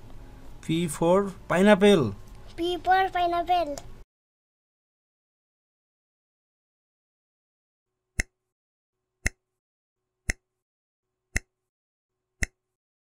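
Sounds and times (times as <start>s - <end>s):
clock-like timer ticks: 10.3s - 10.5s, 11.4s - 11.7s, 12.4s - 12.8s.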